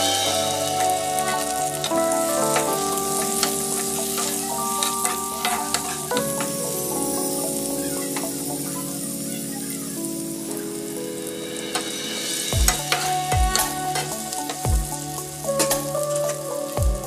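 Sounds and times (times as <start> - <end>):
onions and tomatoes sizzling in oil: 0.0 - 17.0
spatula scraping a frying pan: 2.5 - 6.6, 12.8 - 14.6.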